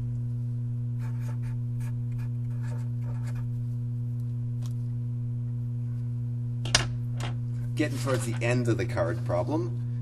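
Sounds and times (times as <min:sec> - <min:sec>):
electrical hum: 0:00.0 - 0:10.0
marker scratching on paper: 0:01.0 - 0:03.5.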